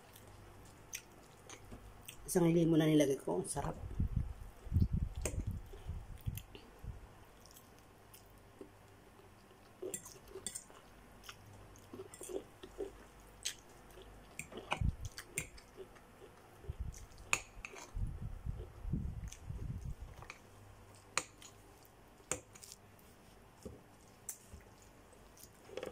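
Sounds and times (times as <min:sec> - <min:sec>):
chewing noodles: 0:07.3 - 0:23.2.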